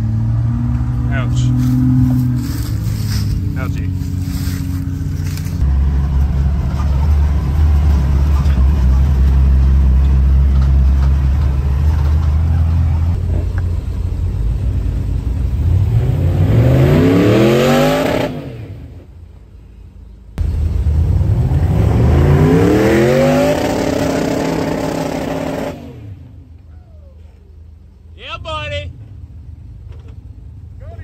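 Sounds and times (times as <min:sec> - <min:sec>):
engine revving: 0:00.0 - 0:13.6, 0:14.4 - 0:19.0, 0:20.4 - 0:26.4
engine droning: 0:00.0 - 0:31.0.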